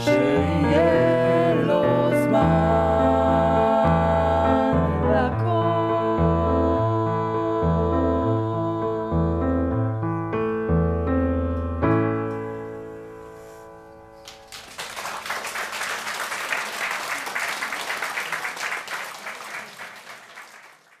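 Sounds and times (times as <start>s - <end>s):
piano playing: 0.0s - 14.8s
audience applause: 14.2s - 21.0s.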